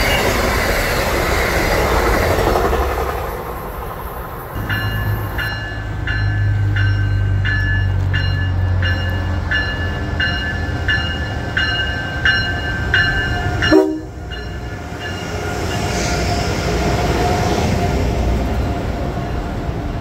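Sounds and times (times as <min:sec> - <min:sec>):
train rumbling: 0:00.0 - 0:20.0
locomotive bell ringing: 0:04.6 - 0:16.0.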